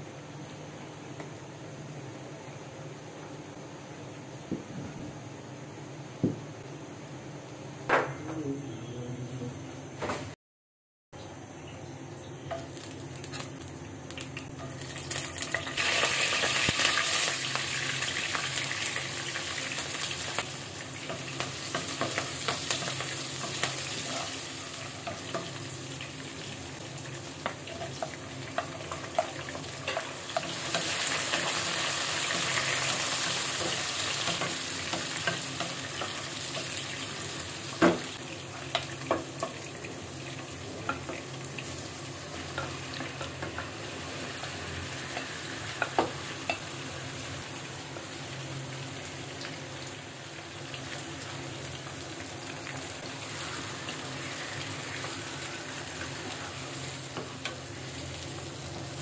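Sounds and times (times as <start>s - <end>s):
onions sizzling in hot oil: 12.4s - 59.0s.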